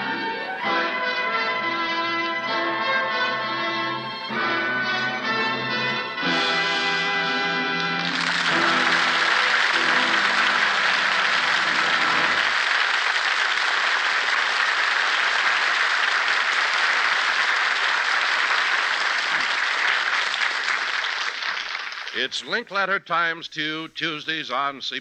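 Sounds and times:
orchestra closing chords: 0:00.0 - 0:14.3
audience applauding: 0:07.5 - 0:22.4.

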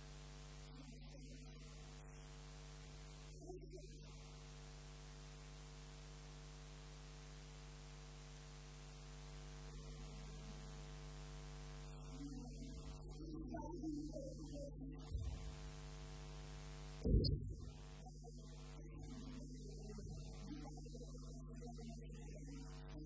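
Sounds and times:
electrical mains hum: 0:00.0 - 0:23.0
faint wavering sounds: 0:11.9 - 0:15.7, 0:17.0 - 0:23.0.

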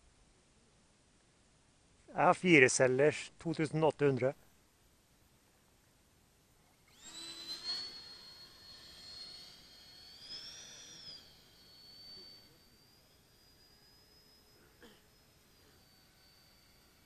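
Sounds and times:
electric ducted fan whining: 0:06.8 - 0:17.0.

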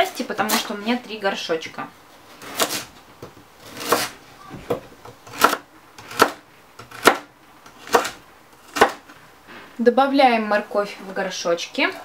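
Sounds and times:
knife cutting carrot on board: 0:03.6 - 0:04.2, 0:05.2 - 0:09.0.

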